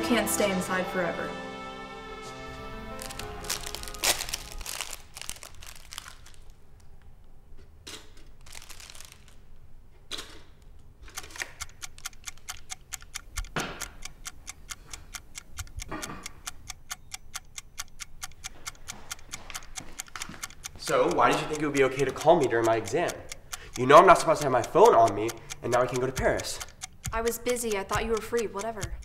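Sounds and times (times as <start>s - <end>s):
rustling handling noises: 3.0s - 7.0s, 8.2s - 9.6s
rapid mechanical ticking: 11.1s - 29.0s.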